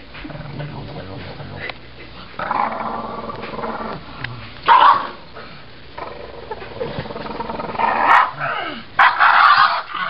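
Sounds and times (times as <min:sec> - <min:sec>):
dog barking: 0:04.7 - 0:05.2, 0:08.1 - 0:08.4, 0:09.0 - 0:10.0.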